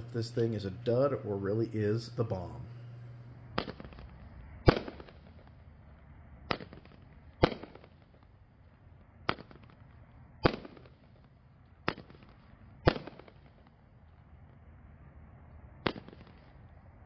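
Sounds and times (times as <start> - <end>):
fireworks shells bursting: 6.5 - 8.3.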